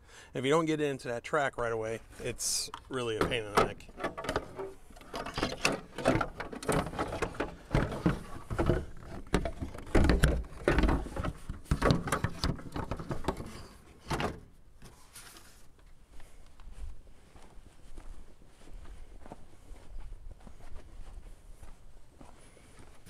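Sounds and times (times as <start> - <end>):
plastic knocks and clicks: 2.7 - 13.5.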